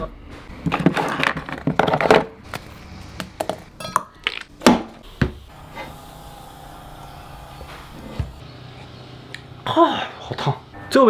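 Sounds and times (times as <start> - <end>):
faint steady hum: 5.0 - 11.0.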